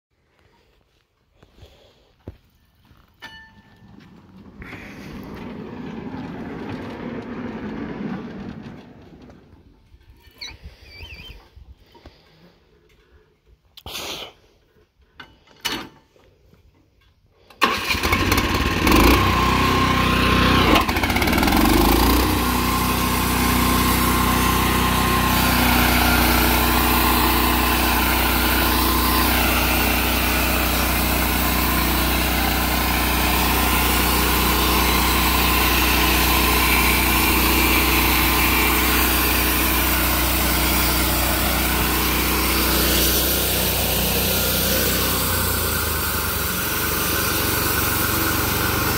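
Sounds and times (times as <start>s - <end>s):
small gasoline engine revving: 4.5s - 9.4s, 17.6s - 48.9s.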